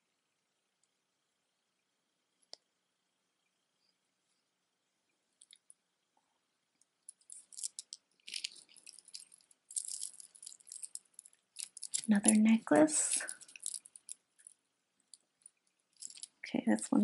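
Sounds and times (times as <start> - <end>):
beads and clasp clicking: 6.8 - 16.5
metal chains jingling: 8.3 - 11.0.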